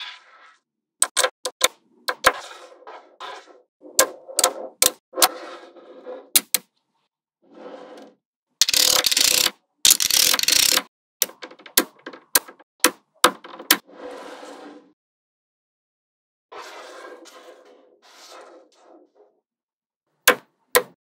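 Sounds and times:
magnetic balls clicking: 0:08.6 - 0:12.5.

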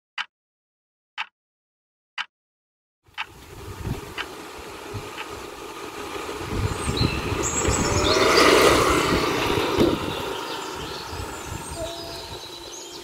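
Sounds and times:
motor scooter passing by: 0:03.3 - 0:13.0.

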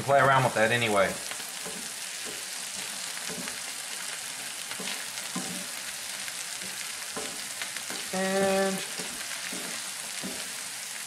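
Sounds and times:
lentils sizzling in a skillet: 0:00.0 - 0:11.0
wooden spoon scraping and knocking pan: 0:01.3 - 0:10.7.

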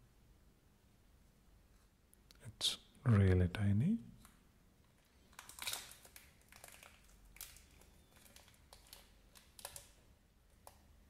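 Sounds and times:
plastic wrapping crinkling: 0:04.9 - 0:10.8.

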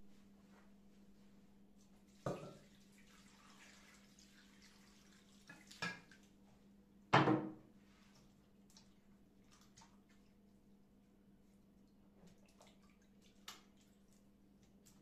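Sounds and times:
water pouring and splashing into bowl: 0:02.0 - 0:06.4, 0:07.8 - 0:10.3, 0:12.2 - 0:15.0
loud knock: 0:07.2 - 0:07.5.

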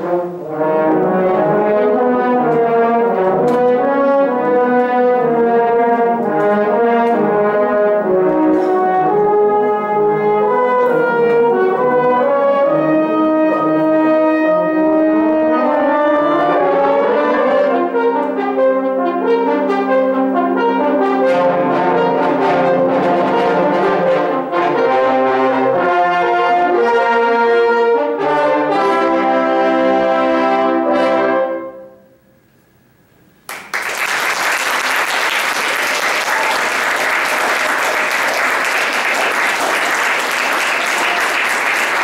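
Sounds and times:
french horns playing chords: 0:00.0 - 0:32.3
audience applause: 0:33.5 - 0:42.0.

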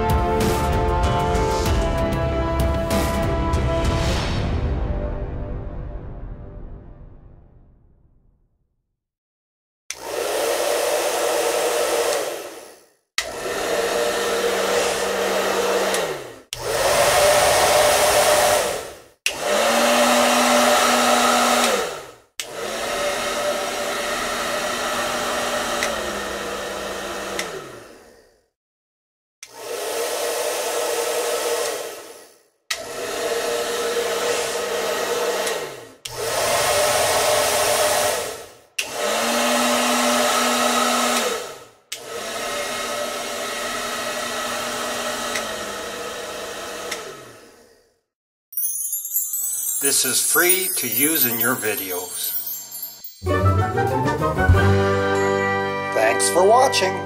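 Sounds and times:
hair dryer blowing: 0:09.9 - 0:28.3, 0:29.4 - 0:47.9, 0:49.0 - 0:53.4.

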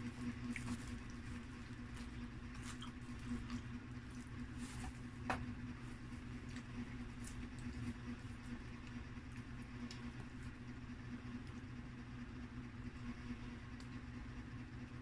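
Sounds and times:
pizza crackling and rustling on paper: 0:00.0 - 0:10.6
steady low hum: 0:00.0 - 0:15.0.

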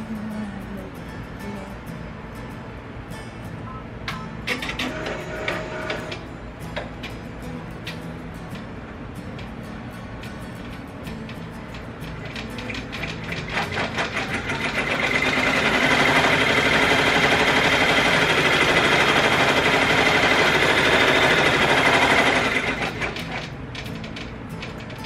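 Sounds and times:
embroidery machine stitching: 0:04.5 - 0:06.2, 0:12.2 - 0:25.0.

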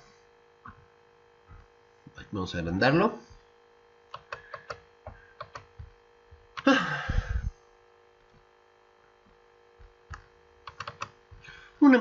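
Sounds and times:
electrical hum: 0:00.0 - 0:12.0
computer clicks: 0:04.1 - 0:04.8, 0:05.4 - 0:05.7, 0:10.1 - 0:11.2.

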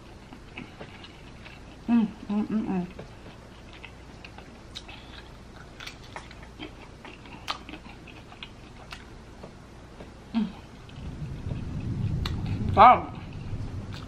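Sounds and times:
chewing smacks: 0:00.2 - 0:01.9, 0:02.9 - 0:12.5.

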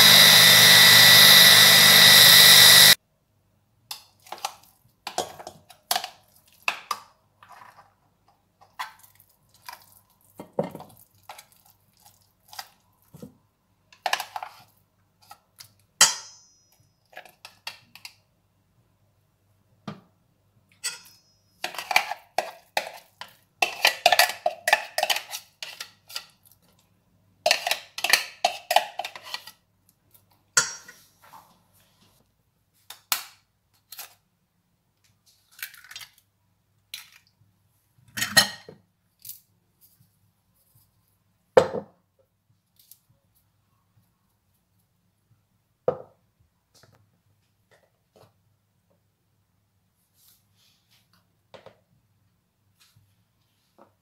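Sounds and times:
kitchenware clinking against steel bowl: 0:20.8 - 0:23.0, 0:30.6 - 0:31.0.

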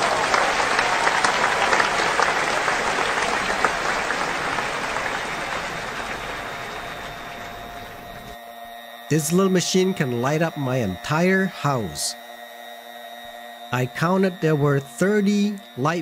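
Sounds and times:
applause: 0:00.0 - 0:08.4.

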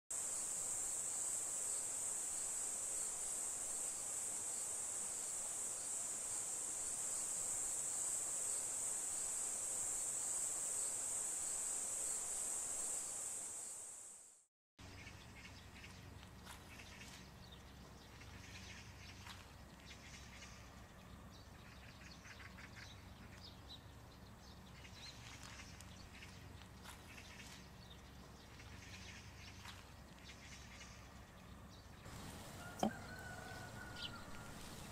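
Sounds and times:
high-pitched insect chorus: 0:00.1 - 0:14.4.

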